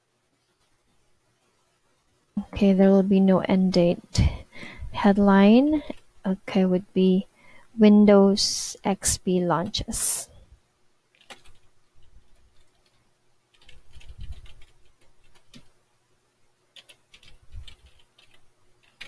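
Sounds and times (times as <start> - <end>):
typing on computer keyboard: 11.1 - 15.7, 16.8 - 19.0.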